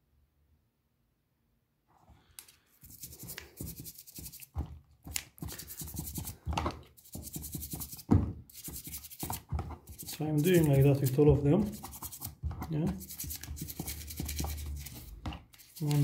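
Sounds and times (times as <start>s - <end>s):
toothbrush scrubbing metal: 2.8s - 16.0s.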